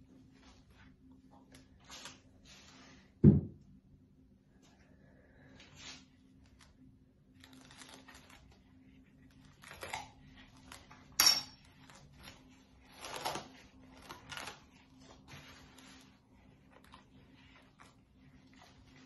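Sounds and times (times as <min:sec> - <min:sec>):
cling film crinkling: 0:07.3 - 0:08.7.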